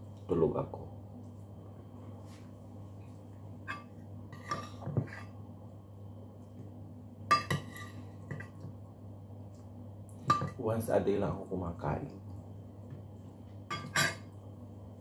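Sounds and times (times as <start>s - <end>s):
steady low hum: 0.0s - 15.0s
metal spoon clinking on bowl: 13.7s - 14.3s.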